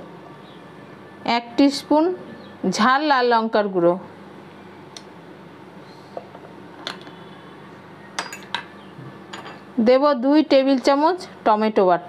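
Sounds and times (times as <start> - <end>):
faint steady hum: 0.0 - 12.0
metal spoon clinking on dishes: 8.2 - 8.7, 9.3 - 9.7.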